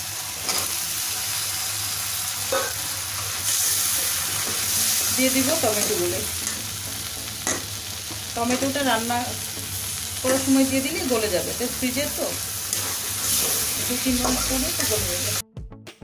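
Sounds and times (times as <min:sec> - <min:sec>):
potatoes sizzling in hot oil: 0:00.0 - 0:15.4.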